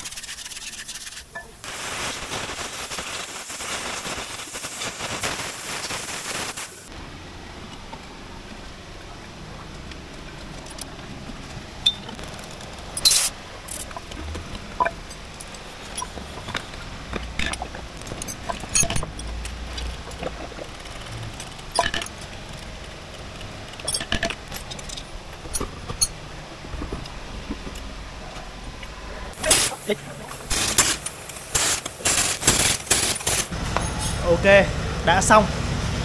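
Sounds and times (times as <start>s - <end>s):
metal tools clinking: 12.9s - 14.1s, 17.4s - 20.2s, 23.4s - 26.2s, 29.4s - 34.3s.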